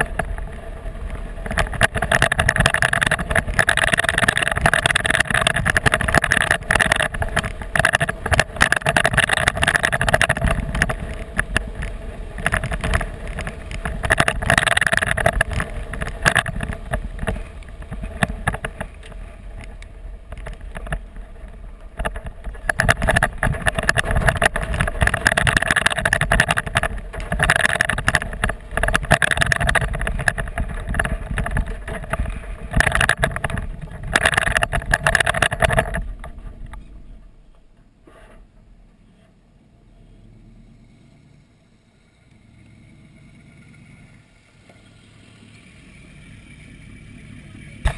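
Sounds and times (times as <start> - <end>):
tyres crunching over gravel: 0.0 - 37.0
road rumble: 0.0 - 47.9.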